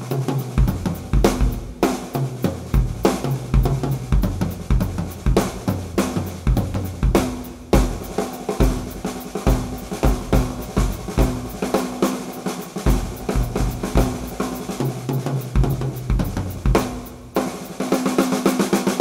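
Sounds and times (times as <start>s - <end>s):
cymbals: 0.0s - 19.0s
snare drum hits: 0.0s - 19.0s
bass drum thumps: 0.6s - 1.9s, 2.5s - 11.6s, 12.9s - 14.4s, 15.6s - 17.0s.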